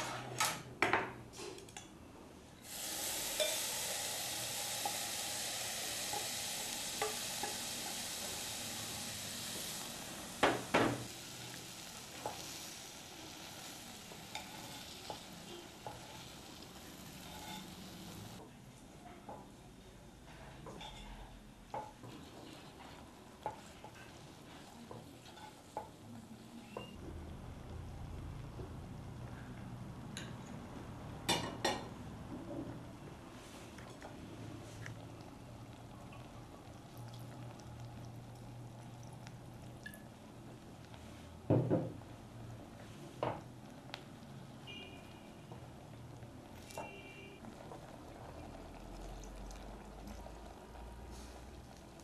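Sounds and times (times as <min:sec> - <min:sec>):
faint hiss: 0:02.6 - 0:18.5.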